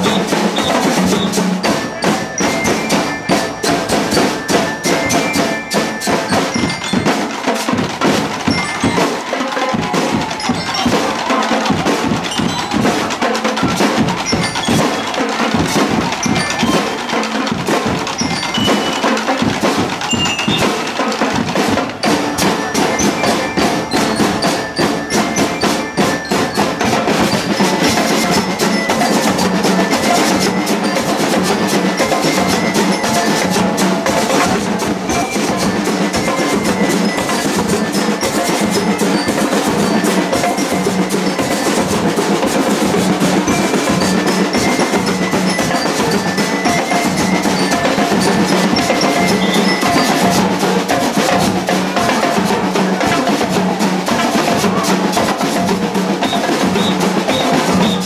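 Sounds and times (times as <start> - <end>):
bell lyre metallic notes: 0.0 - 7.4, 22.1 - 52.1
snare and bass drums: 0.0 - 58.0.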